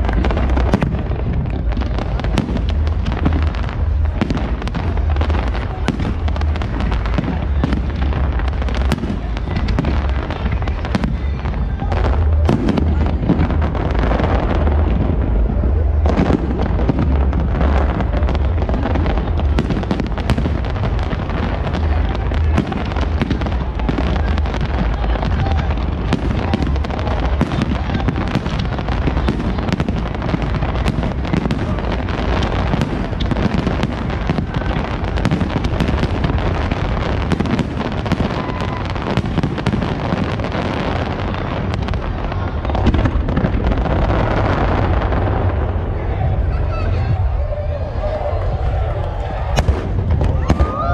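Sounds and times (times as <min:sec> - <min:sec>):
deep low rumble: 0:00.0 - 0:37.5
fireworks bursting and crackling: 0:00.0 - 0:50.9.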